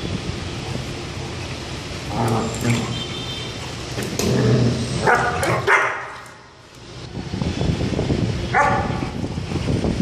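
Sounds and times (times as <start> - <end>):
puppies barking: 5.0 - 6.4, 8.6 - 9.0.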